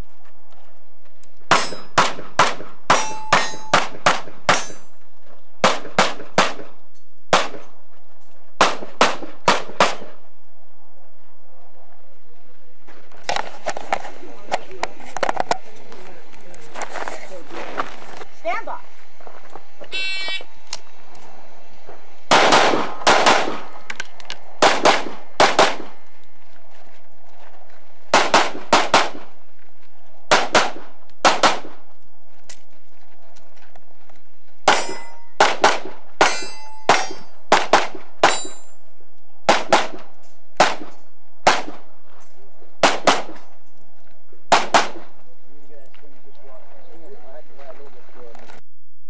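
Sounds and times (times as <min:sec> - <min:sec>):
steel targets ringing: 0:01.5 - 0:02.0, 0:02.9 - 0:03.9, 0:04.5 - 0:05.0, 0:34.7 - 0:35.4, 0:36.2 - 0:37.4, 0:38.2 - 0:38.8
pistol shots: 0:01.5 - 0:04.8, 0:05.6 - 0:07.7, 0:08.6 - 0:10.2, 0:22.3 - 0:23.8, 0:24.6 - 0:26.0, 0:28.1 - 0:29.3, 0:30.3 - 0:31.8, 0:34.6 - 0:38.7, 0:39.5 - 0:41.9, 0:42.8 - 0:43.6, 0:44.5 - 0:45.2.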